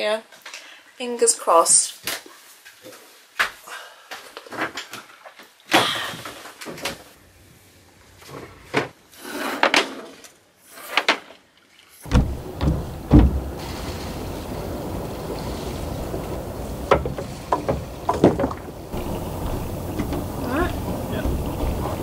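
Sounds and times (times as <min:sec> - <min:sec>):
steady rumbling hiss: 0:12.0 - 0:22.0
gear handling knocks and clicks: 0:12.1 - 0:13.6, 0:16.9 - 0:22.0
dull thumps: 0:12.1 - 0:22.0.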